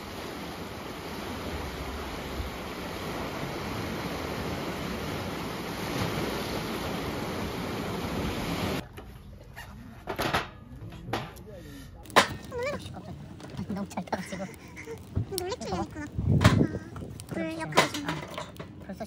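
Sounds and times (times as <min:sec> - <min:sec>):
sea waves washing over rocks: 0:00.0 - 0:08.8.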